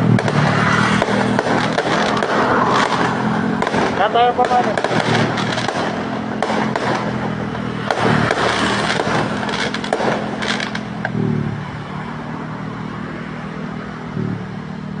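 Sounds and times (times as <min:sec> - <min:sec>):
fireworks popping and crackling: 0:00.0 - 0:11.2
low engine hum: 0:00.0 - 0:15.0.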